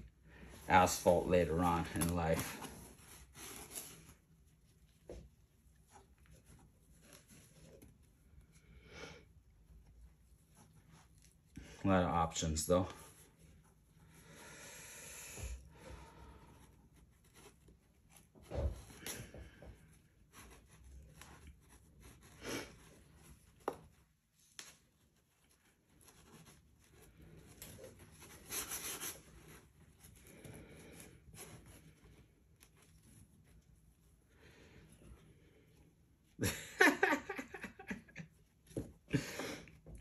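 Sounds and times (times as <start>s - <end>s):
cardboard rustling and scraping: 0.0s - 8.2s, 16.6s - 34.1s.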